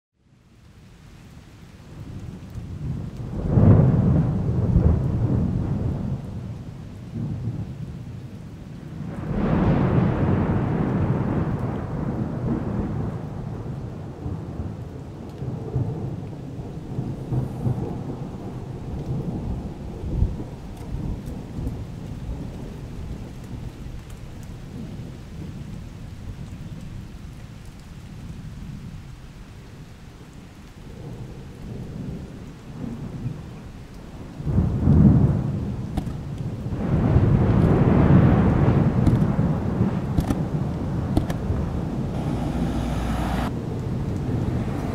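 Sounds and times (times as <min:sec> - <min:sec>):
rolling thunder: 0:02.6 - 0:07.7, 0:08.9 - 0:23.6, 0:34.1 - 0:44.9.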